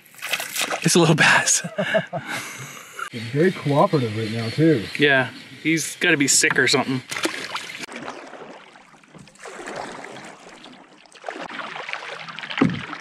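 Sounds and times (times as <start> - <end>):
water splashing around canoe: 0.0 - 1.2, 3.7 - 13.0
low thump: 12.6 - 13.0.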